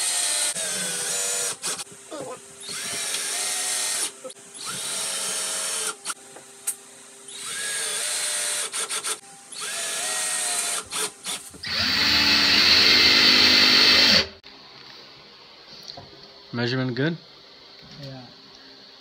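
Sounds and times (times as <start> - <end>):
cordless drill driving screws: 0.0 - 1.8, 2.6 - 6.2, 7.3 - 14.3
drill clicks: 2.7 - 6.2.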